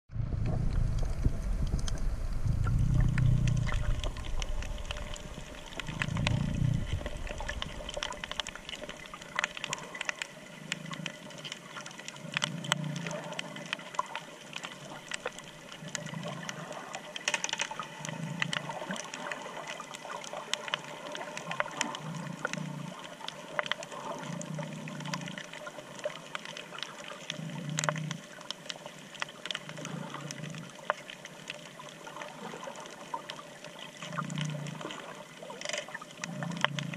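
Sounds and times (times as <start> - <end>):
muffled whooshes of water: 0.1 - 17.2
low churning of water: 0.1 - 36.9
crackle of small clicks underwater: 0.4 - 36.9.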